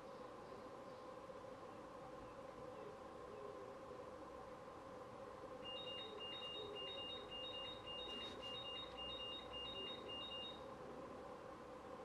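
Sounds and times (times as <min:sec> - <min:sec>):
faint background hum: 0:00.0 - 0:12.0
high-pitched electronic beeps: 0:05.7 - 0:10.6.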